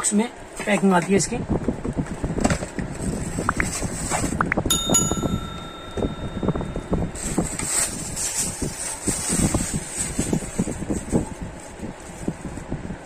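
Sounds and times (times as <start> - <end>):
bell chime ringing: 4.7 - 7.6.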